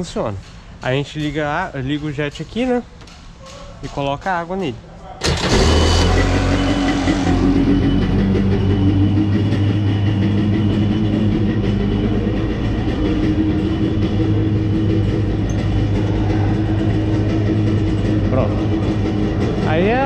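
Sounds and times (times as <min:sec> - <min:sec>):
jet ski engine idling: 0:05.2 - 0:20.0.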